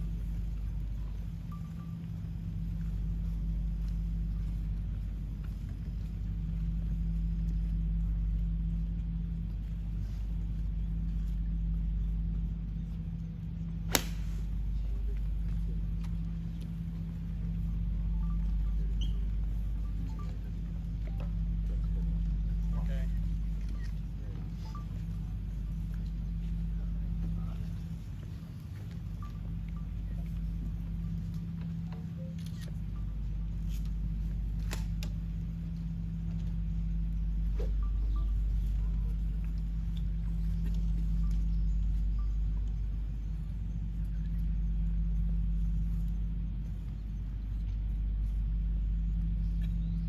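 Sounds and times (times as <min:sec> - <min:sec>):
steady low hum: 0:00.0 - 0:50.0
golf club striking ball: 0:13.9 - 0:14.5.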